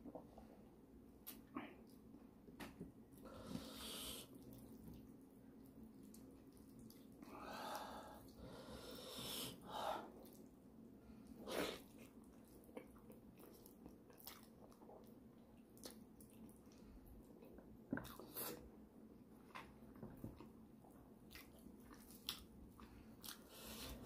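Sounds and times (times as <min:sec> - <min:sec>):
wet chewing: 0:11.9 - 0:15.1.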